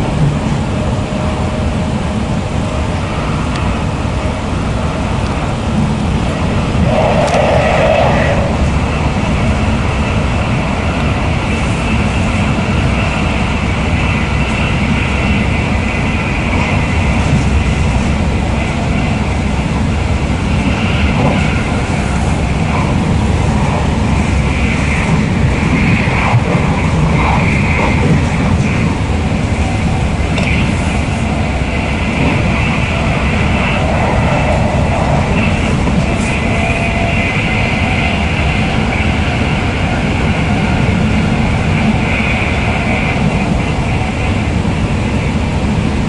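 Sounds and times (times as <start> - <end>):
higher band of noise: 0.0 - 46.0
train wheels rumbling on rails: 0.0 - 46.0.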